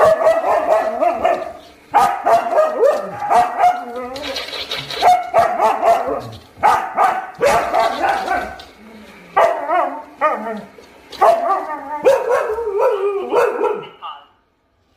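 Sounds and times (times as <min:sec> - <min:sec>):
dog howling and barking: 0:00.0 - 0:04.4, 0:05.0 - 0:13.9.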